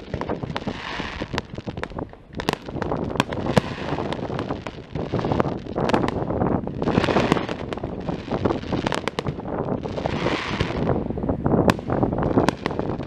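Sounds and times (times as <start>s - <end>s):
fireworks bangs and crackles: 0.0s - 13.0s
hissing crackle: 0.0s - 13.0s.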